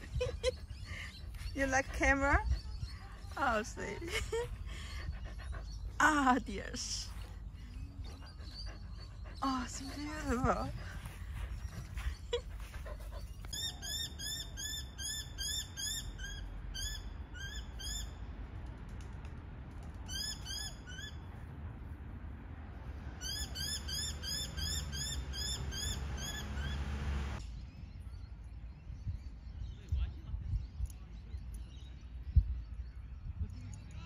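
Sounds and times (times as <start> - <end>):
low background rumble: 0.0 - 13.5.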